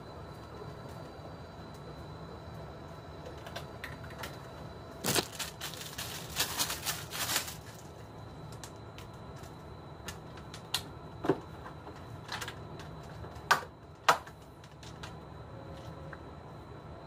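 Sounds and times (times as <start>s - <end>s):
low background hum: 0.0s - 17.0s
plastic packaging crinkling: 5.0s - 8.8s.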